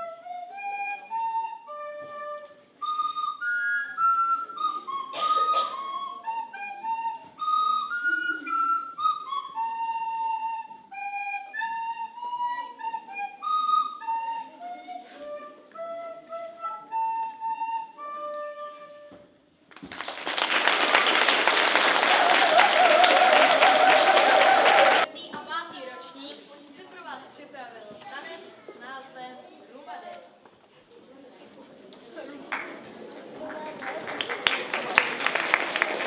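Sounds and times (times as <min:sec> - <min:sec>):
recorder duet melody: 0:00.0 - 0:19.3
audience applauding: 0:19.7 - 0:25.1, 0:32.5 - 0:32.8, 0:33.4 - 0:36.0.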